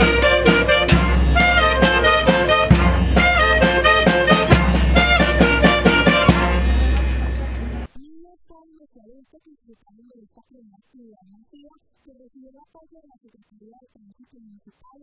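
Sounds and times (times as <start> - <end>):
wind band playing brisk tune: 0.0 - 7.9.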